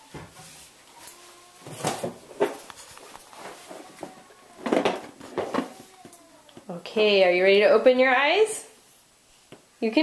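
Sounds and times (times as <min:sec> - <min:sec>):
rustling: 0:00.0 - 0:06.8.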